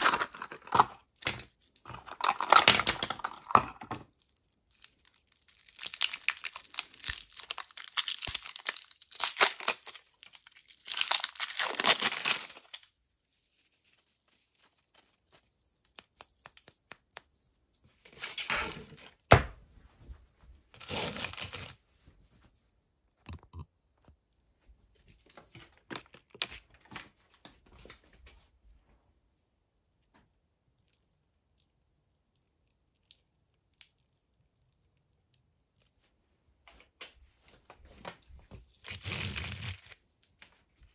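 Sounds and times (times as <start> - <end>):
plastic film tearing and crinkling: 0.0 - 3.6, 4.7 - 17.1, 20.8 - 21.8, 38.7 - 40.0.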